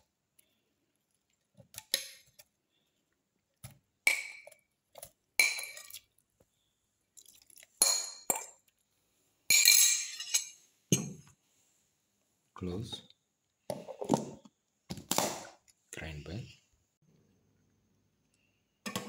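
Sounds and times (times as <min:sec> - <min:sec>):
metal spoon clinking against bowl: 0:09.5 - 0:11.1.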